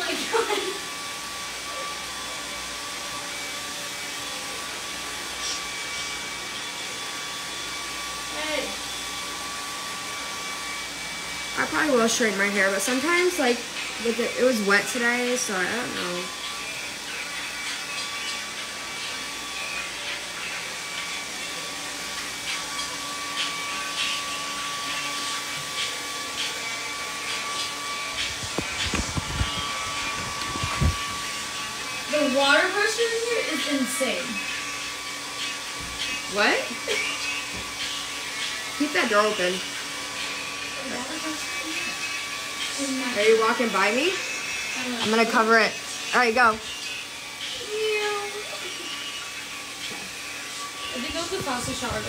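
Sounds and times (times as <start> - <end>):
hair dryer blowing air: 0.0 - 52.0
motor whine: 0.0 - 52.0.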